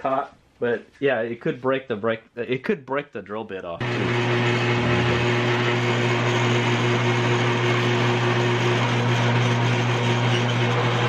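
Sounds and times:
drill press motor hum: 0:03.8 - 0:11.0.

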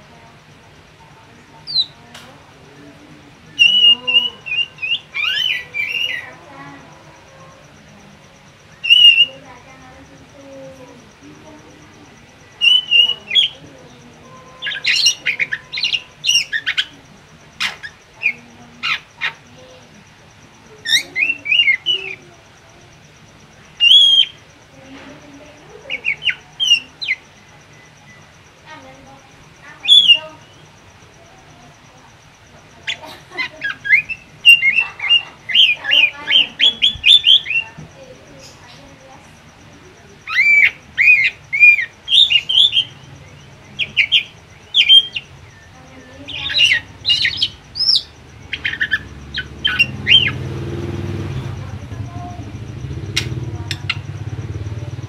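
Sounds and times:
songbird chirping: 0:00.0 - 0:55.0
bird whistling and chattering: 0:01.6 - 0:02.0, 0:03.5 - 0:06.4, 0:08.6 - 0:09.4, 0:12.4 - 0:19.6, 0:20.8 - 0:22.2, 0:23.7 - 0:24.5, 0:25.8 - 0:28.3, 0:29.8 - 0:30.7, 0:32.8 - 0:37.8, 0:40.1 - 0:51.6, 0:52.7 - 0:55.0.

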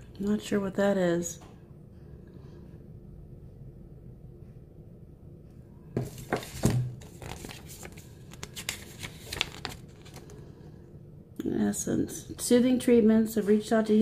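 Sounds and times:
paper packaging rustling: 0:06.0 - 0:10.4.

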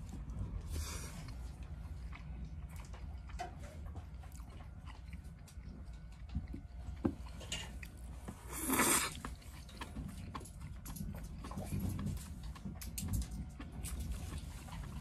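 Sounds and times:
chewing with small clicks: 0:00.0 - 0:15.0
low room hum: 0:00.0 - 0:15.0.

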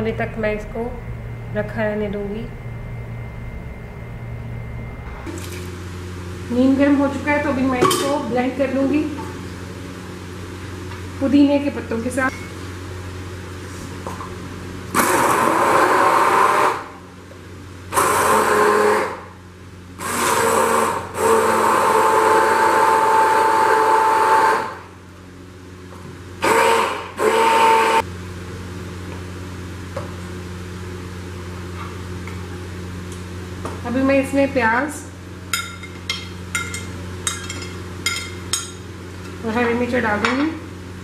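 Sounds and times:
faint low hum: 0:00.0 - 0:05.5
stick blender running in jug: 0:14.9 - 0:17.0, 0:17.9 - 0:19.4, 0:20.0 - 0:24.9, 0:26.4 - 0:28.0.

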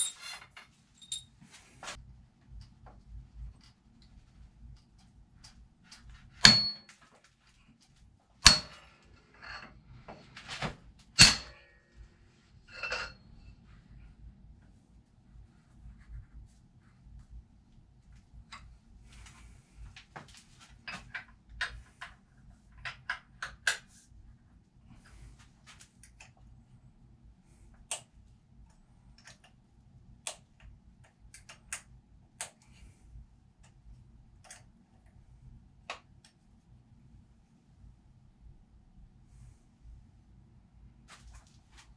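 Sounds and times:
tools clinking and rattling: 0:00.0 - 0:02.0, 0:12.7 - 0:13.2.

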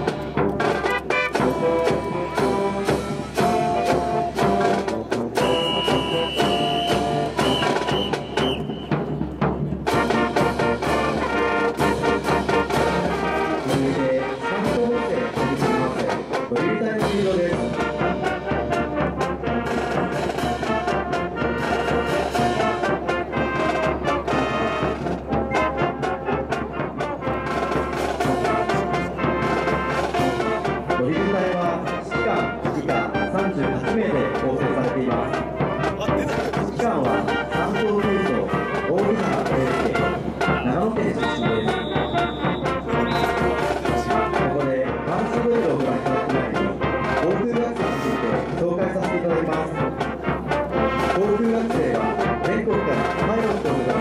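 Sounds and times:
drums and cymbals beat: 0:00.0 - 0:54.0
marching brass band playing: 0:00.0 - 0:54.0.

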